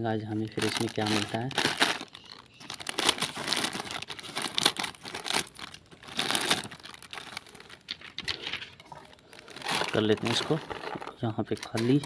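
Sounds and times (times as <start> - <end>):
plastic packet crinkling: 0.2 - 12.0
scissors cutting plastic packet: 0.5 - 7.9, 9.4 - 12.0.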